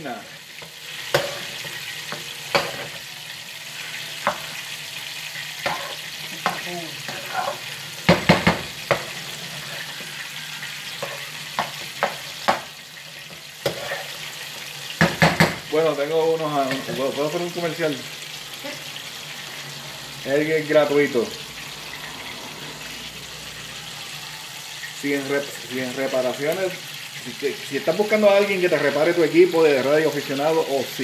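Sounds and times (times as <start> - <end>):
rice sizzling in a frying pan: 0.0 - 31.0
utensil scraping and knocking pan: 5.6 - 9.9, 13.6 - 14.2.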